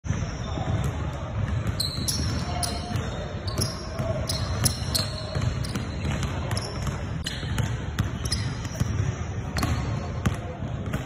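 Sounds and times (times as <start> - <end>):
basketball bouncing on wooden floor: 5.3 - 10.4.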